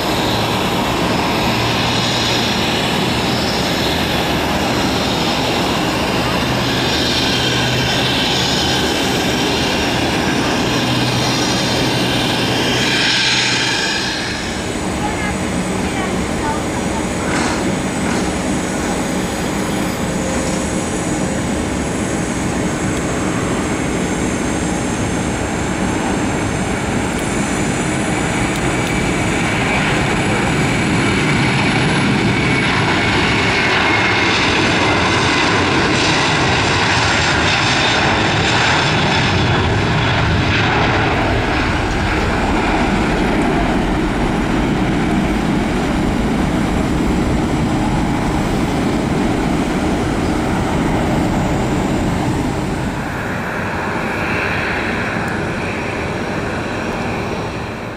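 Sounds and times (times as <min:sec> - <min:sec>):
jet engine whine falling: 0:00.0 - 0:57.9
jet engines at takeoff: 0:00.0 - 0:57.9.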